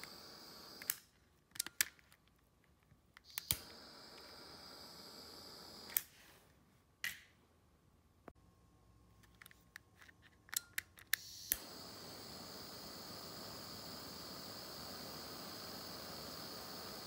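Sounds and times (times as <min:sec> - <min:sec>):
butane torch flame hissing: 0:00.0 - 0:01.1, 0:03.2 - 0:06.2, 0:11.2 - 0:17.0
torch clicks: 0:00.0 - 0:02.0, 0:03.2 - 0:06.1, 0:10.5 - 0:17.0.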